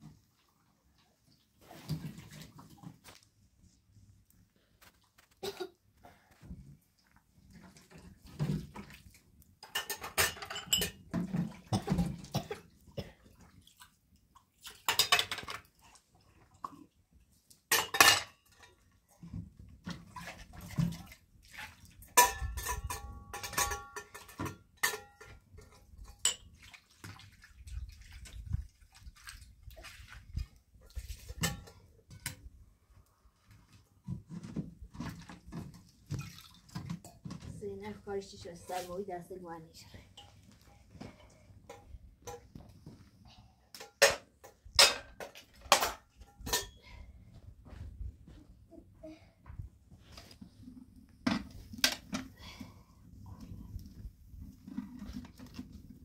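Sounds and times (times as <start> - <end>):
water splashing into metal bowl: 8.4 - 15.8, 20.1 - 32.3, 36.1 - 37.2
metal dishes clinking: 9.6 - 11.1, 14.9 - 15.6, 17.7 - 18.8, 22.2 - 26.5, 31.3 - 31.9, 43.8 - 46.9.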